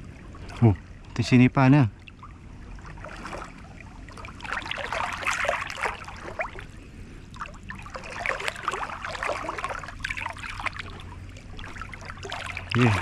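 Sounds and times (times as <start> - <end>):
water splashing and trickling: 0.0 - 13.0.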